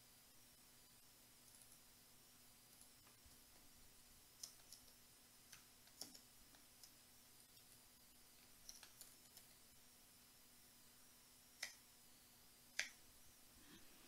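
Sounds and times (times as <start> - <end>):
faint steady hum: 0.0 - 14.0
computer keystrokes: 4.4 - 7.8, 8.4 - 9.6
computer mouse clicks: 4.4 - 7.8, 8.4 - 9.6, 11.6 - 11.8, 12.7 - 13.0.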